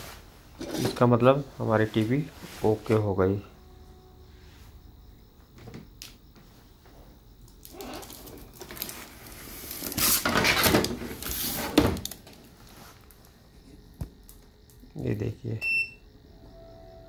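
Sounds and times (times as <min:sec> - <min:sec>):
rustling and scraping: 0:00.0 - 0:03.2, 0:05.5 - 0:14.0.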